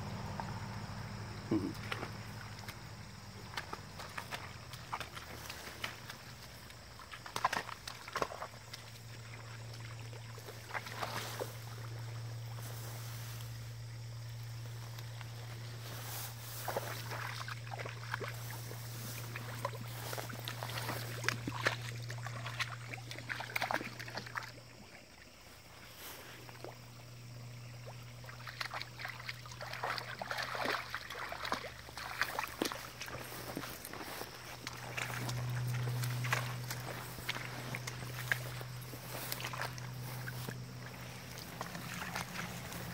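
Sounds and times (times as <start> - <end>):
dog splashing through water: 1.4 - 13.6, 15.2 - 25.0, 27.8 - 42.9
steady low hum: 26.4 - 42.9.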